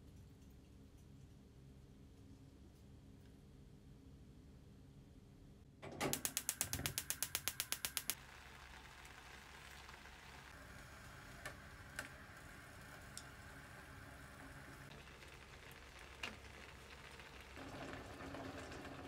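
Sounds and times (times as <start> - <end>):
gas igniter clicking: 6.0 - 8.2
gas flame hissing: 6.1 - 15.4.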